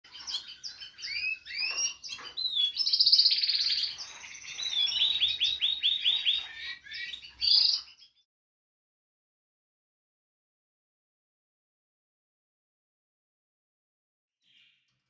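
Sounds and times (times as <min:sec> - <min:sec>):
songbirds chirping: 0:00.0 - 0:08.3, 0:14.4 - 0:15.0
bird trill: 0:00.1 - 0:08.2.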